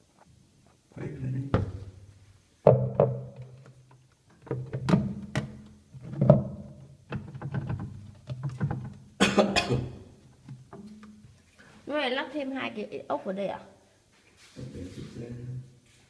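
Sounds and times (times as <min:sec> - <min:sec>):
plastic clacks in washing machine tub: 0:03.0 - 0:09.1.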